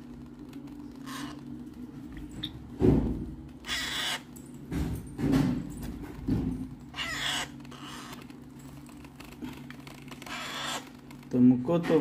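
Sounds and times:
steady low hum: 0.0 - 12.0
parrot chicks begging calls: 3.6 - 4.3, 6.9 - 8.2, 10.2 - 10.9.

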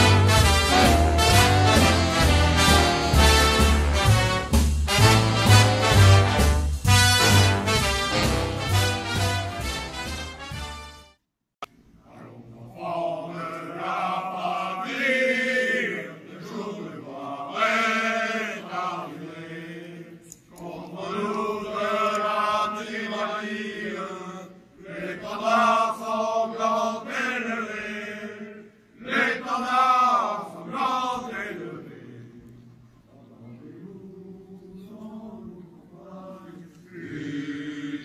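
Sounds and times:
voices singing in chorus: 12.2 - 38.0.

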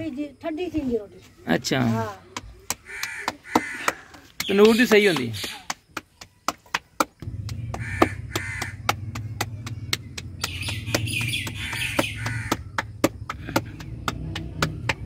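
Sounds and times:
birds calling: 1.1 - 15.0
dough slapped between palms: 2.3 - 15.0.

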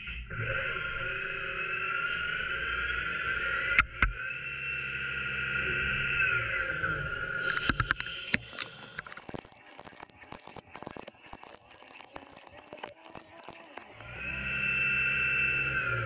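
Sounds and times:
quick clicks: 7.5 - 14.4
lathe spindle whining: 8.3 - 16.0.

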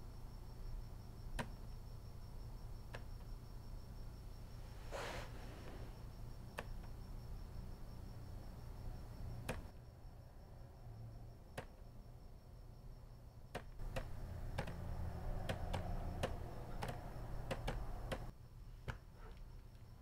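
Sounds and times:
low steady hum: 0.0 - 20.0
light key clicks: 13.5 - 18.3.

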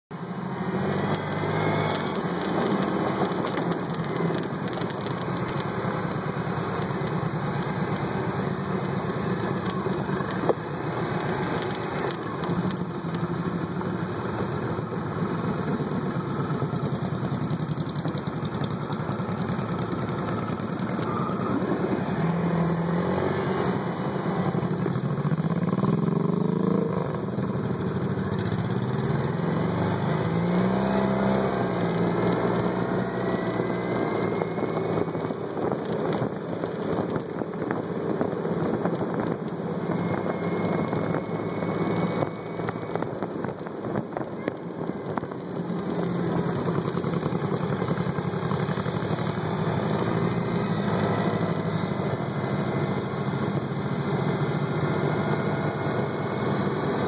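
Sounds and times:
motorcycle engine running: 0.1 - 57.0.

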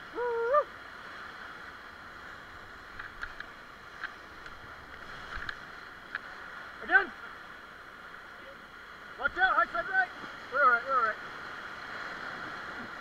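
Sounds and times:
whitewater rushing: 0.0 - 13.0.

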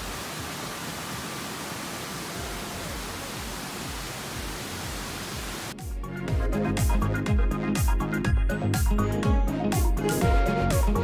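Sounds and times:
waterfall roaring: 0.0 - 5.8
electronic music with beat: 5.8 - 11.0.

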